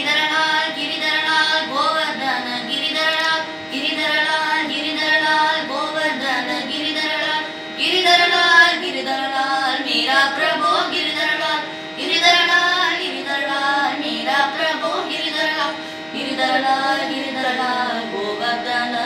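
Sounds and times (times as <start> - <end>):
boy singing: 0.0 - 19.0
steady drone: 0.0 - 19.0.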